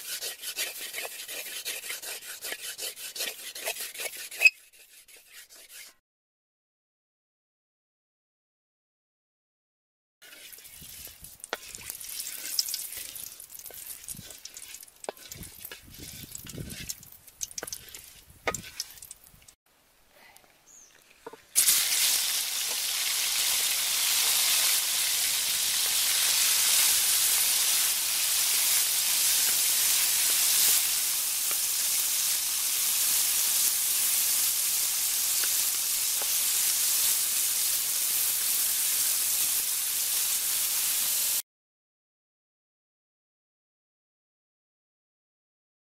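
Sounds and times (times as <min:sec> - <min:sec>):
food sizzling in hot oil: 0:00.0 - 0:05.9, 0:10.2 - 0:19.6, 0:21.6 - 0:41.4
spatula scraping metal wok: 0:00.0 - 0:06.0, 0:10.2 - 0:19.6, 0:21.2 - 0:41.4.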